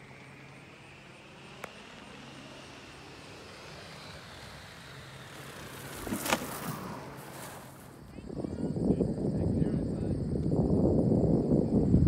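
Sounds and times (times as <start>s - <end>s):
air rushing past parachute: 2.2s - 9.3s.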